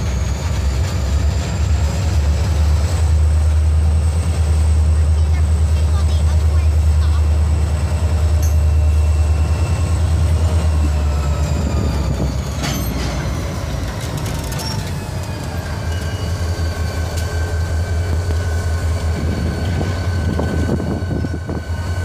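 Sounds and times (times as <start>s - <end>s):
diesel locomotive engines rumbling: 0.0s - 22.0s
high-pitched wheel squeal: 8.4s - 17.8s.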